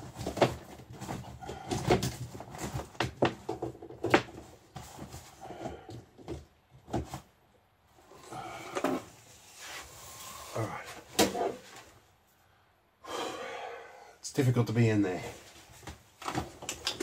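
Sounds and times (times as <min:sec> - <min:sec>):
equipment and cables clattering: 0:00.0 - 0:07.2, 0:15.6 - 0:17.0.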